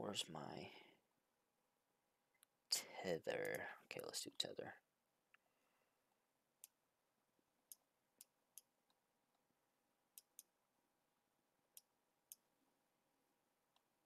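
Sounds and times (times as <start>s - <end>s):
computer mouse clicks: 10.1s - 10.5s.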